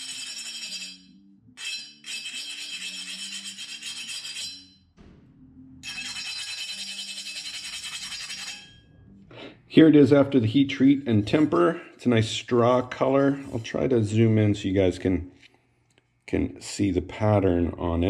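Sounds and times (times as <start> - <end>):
wire brush scratching steel: 0.0 - 4.8, 5.8 - 8.9.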